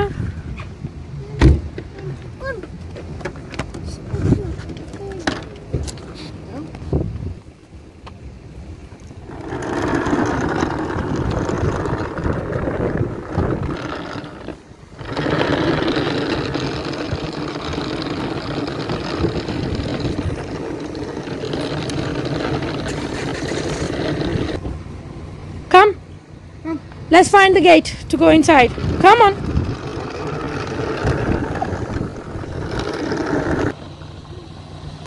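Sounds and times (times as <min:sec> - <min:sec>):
vacuum wheels rolling over asphalt: 0:08.9 - 0:24.8, 0:27.2 - 0:35.0.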